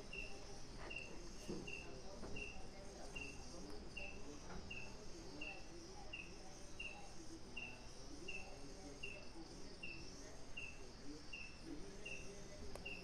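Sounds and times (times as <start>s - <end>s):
cricket chirping: 0.0s - 13.0s
quiet night background noise: 0.0s - 13.0s.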